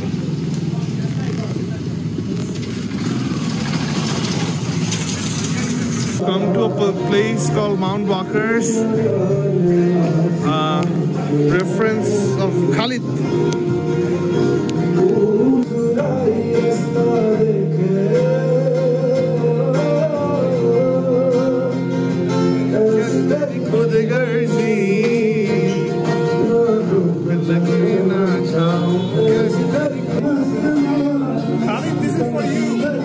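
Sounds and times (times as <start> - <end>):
strummed acoustic guitar: 2.4 - 33.0
man singing into a microphone: 6.2 - 13.3, 14.8 - 33.0.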